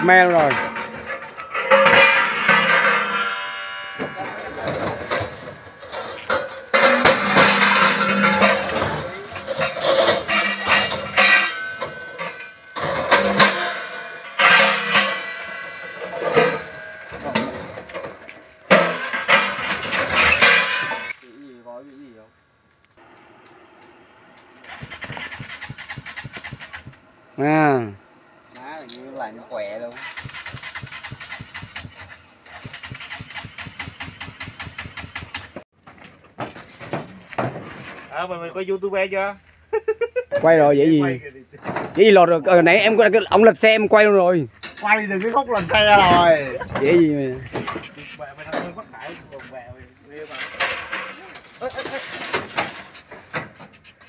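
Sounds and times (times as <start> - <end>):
metal chairs clanging: 0.0 - 21.2, 30.0 - 35.6, 50.3 - 54.0
motorbike engine idling: 23.0 - 27.4, 30.0 - 35.6.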